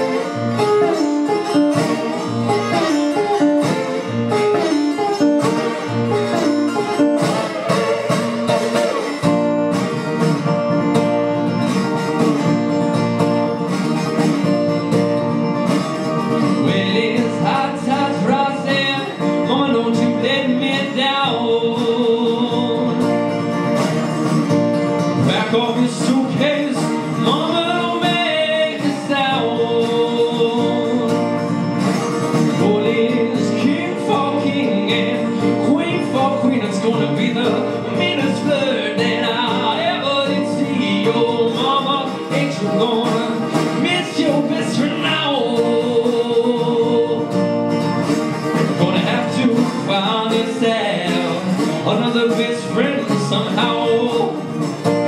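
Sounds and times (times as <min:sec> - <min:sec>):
acoustic guitar playing: 0:00.0 - 0:55.0
man singing wordlessly: 0:16.5 - 0:23.3, 0:25.2 - 0:31.7, 0:32.4 - 0:47.6, 0:48.6 - 0:54.8.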